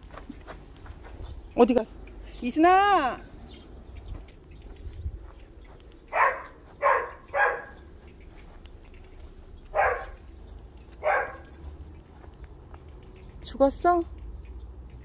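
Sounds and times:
small bird chirping: 0.0 - 15.0
dog barking: 6.1 - 7.9, 9.7 - 10.2, 11.0 - 11.6.

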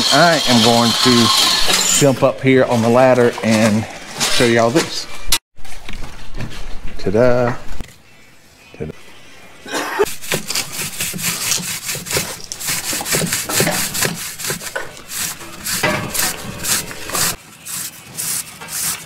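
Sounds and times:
pipe rasping through foam: 0.0 - 2.1, 10.1 - 19.0.

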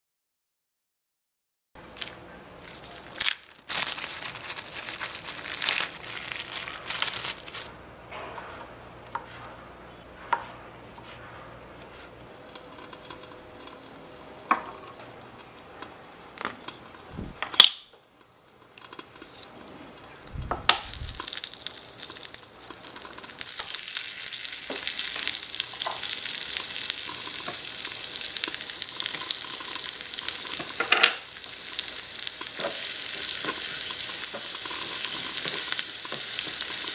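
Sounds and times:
butter and garlic sizzling: 20.4 - 36.9.

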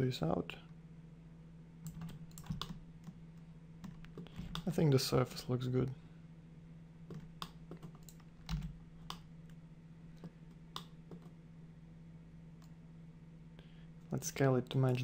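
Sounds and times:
faint electrical hum: 0.0 - 15.0
keyboard and mouse clicks: 1.9 - 3.2, 7.1 - 9.3, 10.2 - 11.3.

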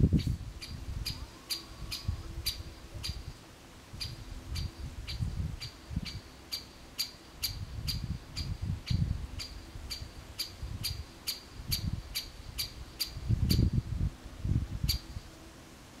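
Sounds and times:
low wind rumble on microphone: 0.0 - 6.4, 7.4 - 16.0
woodpecker sharp kik calls: 0.2 - 3.3, 4.0 - 13.7.

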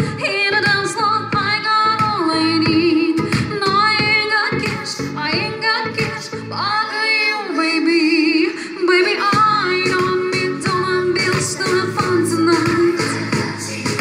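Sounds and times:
steady beat: 0.0 - 6.4, 9.2 - 14.0
woman singing into microphone: 0.0 - 14.0.

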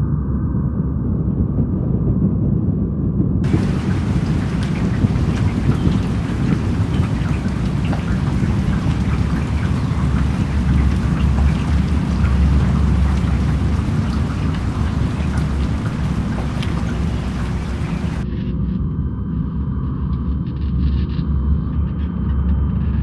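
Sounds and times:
low rumble: 0.0 - 20.7
drops ticking: 3.4 - 18.2
steady rain falling: 3.4 - 18.2.

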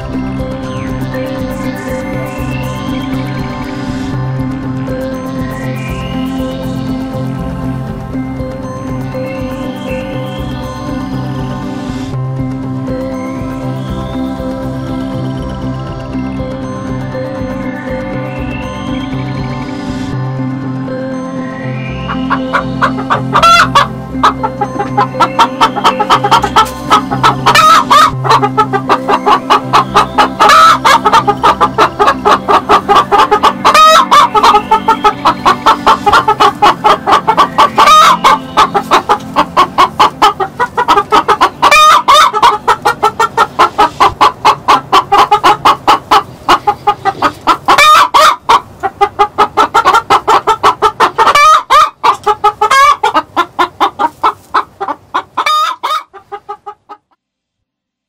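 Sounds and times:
hen cackling: 22.0 - 57.2.

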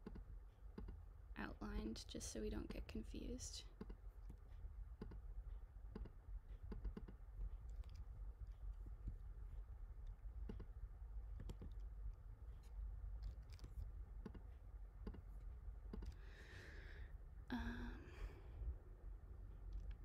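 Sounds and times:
computer mouse clicks: 0.0 - 1.0, 5.0 - 5.2, 5.9 - 8.1, 11.3 - 12.0, 12.6 - 16.2
steady low hum: 0.0 - 20.0.

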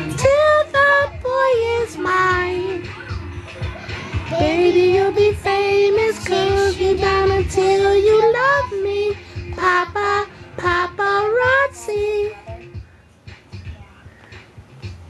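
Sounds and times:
child singing: 0.0 - 3.1, 4.2 - 12.7.

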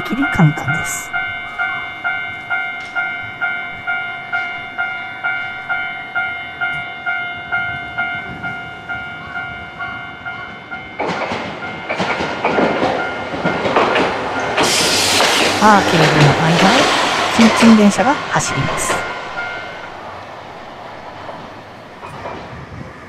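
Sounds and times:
level crossing bell ringing: 0.0 - 12.1, 15.6 - 20.0
streetcar rumble and rail noise: 0.0 - 23.0.

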